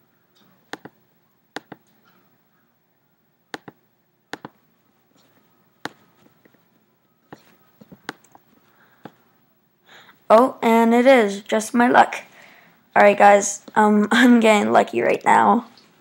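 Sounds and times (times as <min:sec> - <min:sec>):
computer mouse clicking: 0:00.4 - 0:02.2, 0:03.5 - 0:04.6, 0:05.2 - 0:06.6, 0:07.3 - 0:09.3.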